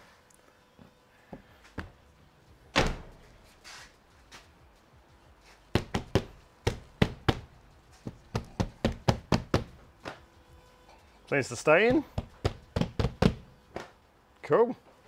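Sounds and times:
hand slapping plastic window: 0:05.8 - 0:07.4, 0:08.1 - 0:10.2.

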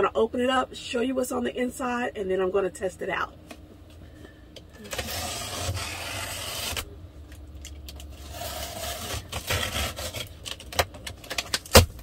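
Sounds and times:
box cutter slicing packing tape: 0:04.8 - 0:06.9, 0:08.1 - 0:12.0
cardboard flaps scraping: 0:04.8 - 0:06.9, 0:08.2 - 0:10.3.

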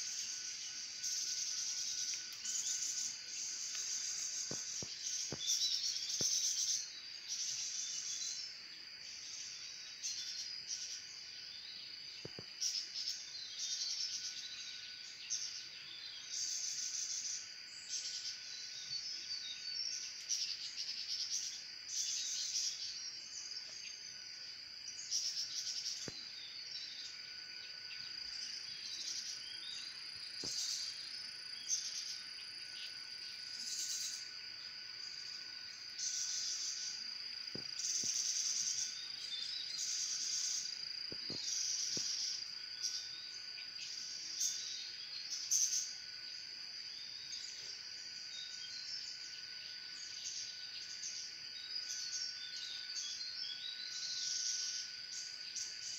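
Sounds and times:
birds chirping: 0:00.0 - 0:55.9
high insect drone: 0:00.0 - 0:55.9
insects buzzing loudly: 0:00.0 - 0:55.9.

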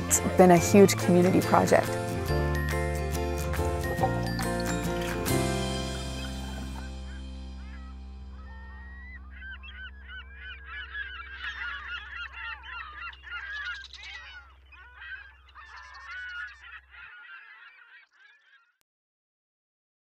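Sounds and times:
flock of birds calling: 0:04.1 - 0:18.8
low held music chord: 0:05.3 - 0:11.9.

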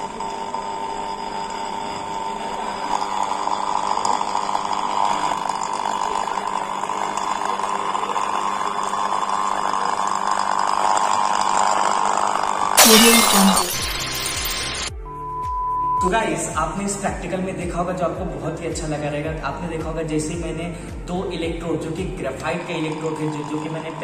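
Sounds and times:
electrolysis sizzling hiss: 0:12.8 - 0:14.9.

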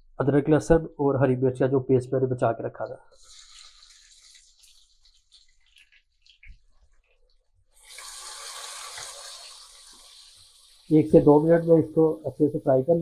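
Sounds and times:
paste sizzling in hot oil: 0:03.1 - 0:12.6.

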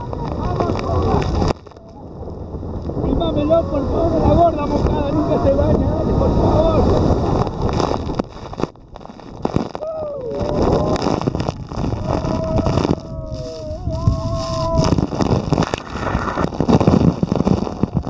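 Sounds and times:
wind hitting microphone: 0:00.0 - 0:18.0
people shrieking and whooping: 0:09.8 - 0:15.2.

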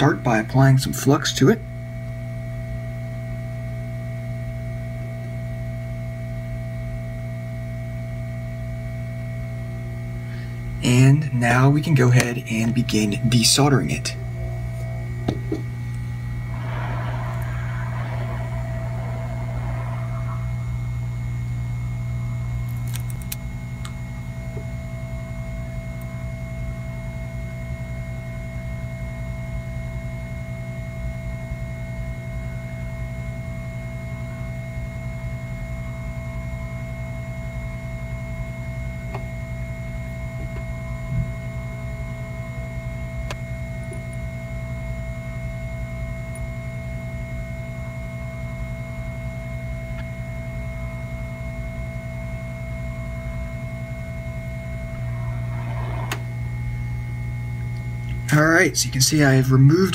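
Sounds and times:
hot air station fan blowing: 0:10.1 - 0:28.8, 0:31.8 - 0:59.9.

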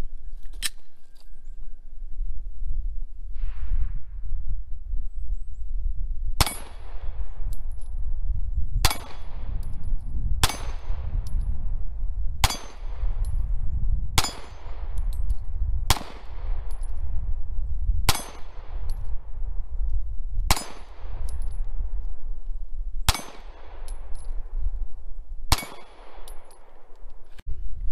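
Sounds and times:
steady low rumble: 0:01.9 - 0:27.9
pistol shots echoing: 0:08.8 - 0:09.5, 0:12.4 - 0:13.1, 0:14.2 - 0:15.0, 0:15.9 - 0:16.6, 0:20.5 - 0:21.4, 0:23.1 - 0:24.2, 0:25.5 - 0:27.0.

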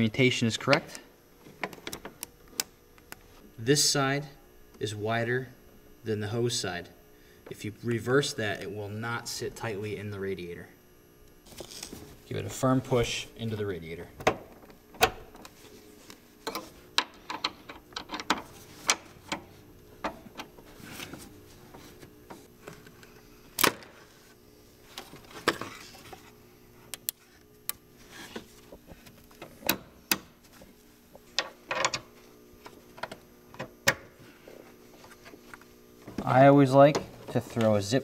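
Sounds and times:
faint steady hum: 0:00.0 - 0:38.0.

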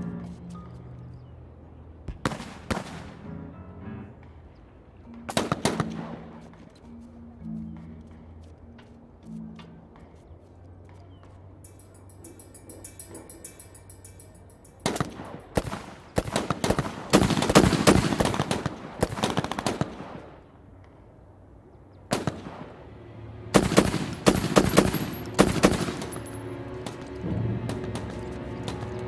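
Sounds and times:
rapid automatic gunfire: 0:14.9 - 0:20.2
single gunshots: 0:22.1 - 0:22.8.

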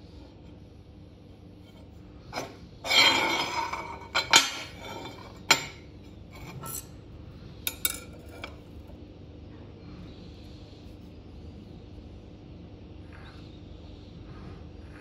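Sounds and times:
metal scraping on metal: 0:01.6 - 0:07.0.

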